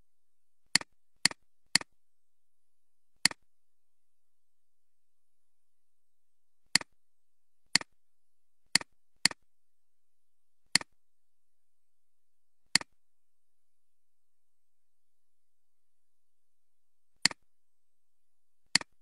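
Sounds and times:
computer mouse clicks: 18.7 - 19.0.

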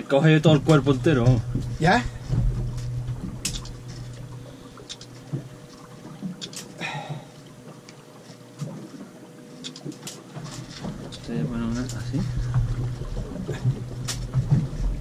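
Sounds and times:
faint steady hum: 0.0 - 15.0
water lapping at hull: 0.0 - 15.0
small knocks and clicks: 0.7 - 6.8, 9.6 - 12.9, 13.6 - 14.8.

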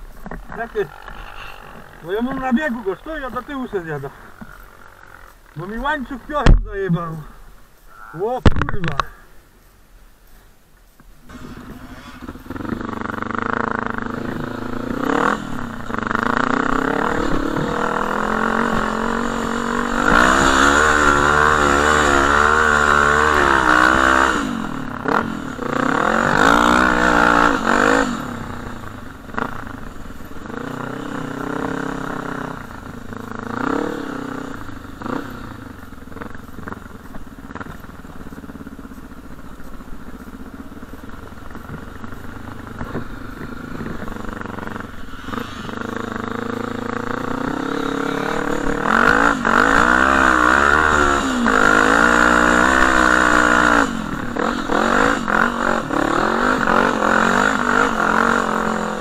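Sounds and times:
atv engine revving: 0.0 - 9.2, 11.2 - 59.0.

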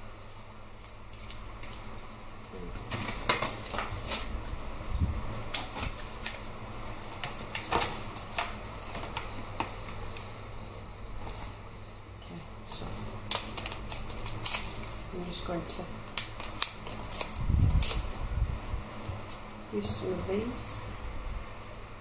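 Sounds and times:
paper rustling: 2.8 - 4.5, 12.7 - 18.2.

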